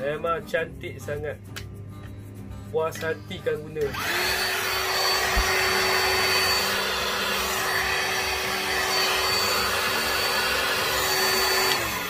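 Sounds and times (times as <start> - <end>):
vacuum motor humming and whining: 3.9 - 12.0.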